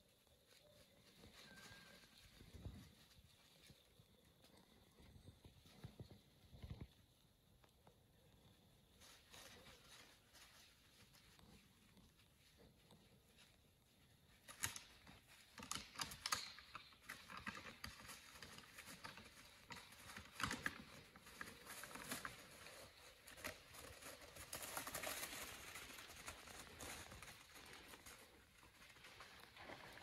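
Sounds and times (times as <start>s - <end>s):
rustling: 0.0s - 30.0s.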